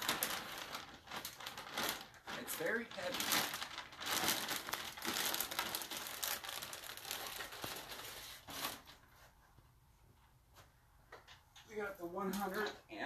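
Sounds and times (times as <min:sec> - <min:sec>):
plastic bags crinkling: 0:00.0 - 0:09.1.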